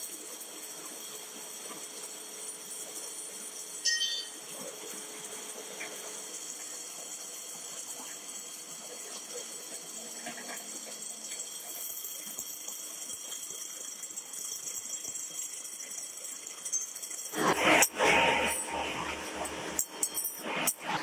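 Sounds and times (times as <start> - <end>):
faint metal clinks: 3.8 - 4.4.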